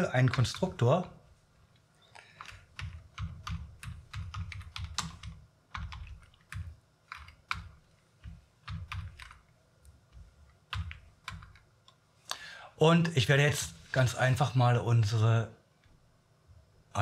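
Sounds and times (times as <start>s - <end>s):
typing on computer keyboard: 2.2s - 9.5s, 10.7s - 11.7s.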